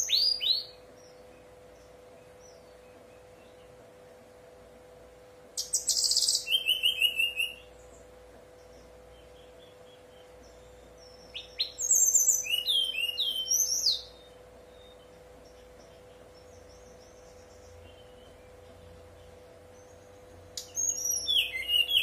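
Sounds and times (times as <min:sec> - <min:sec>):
bird singing fluty whistles: 0:00.0 - 0:00.8, 0:05.6 - 0:07.8, 0:10.2 - 0:15.1, 0:20.6 - 0:22.0.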